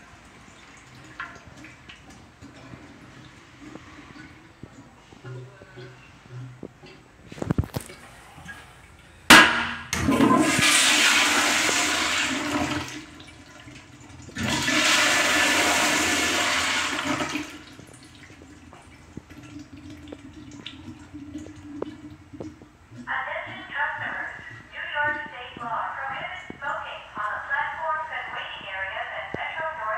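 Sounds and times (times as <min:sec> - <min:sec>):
refill water trickling: 0:00.0 - 0:09.3, 0:10.4 - 0:24.8
flush valve bang: 0:09.3 - 0:12.8
toilet flush water rushing: 0:09.3 - 0:23.0.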